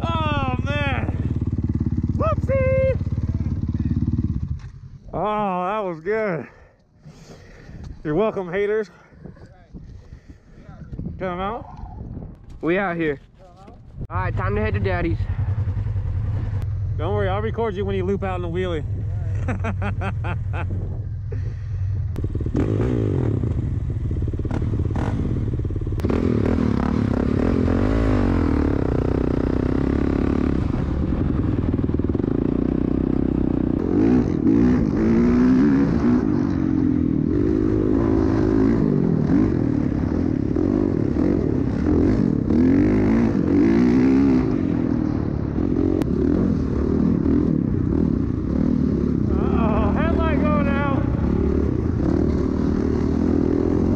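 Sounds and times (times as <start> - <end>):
dirt bike engine revving: 0.0 - 5.8, 22.2 - 53.9.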